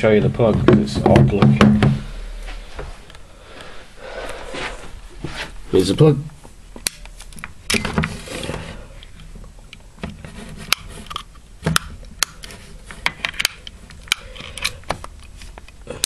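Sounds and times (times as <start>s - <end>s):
soft rustling: 2.0s - 6.6s.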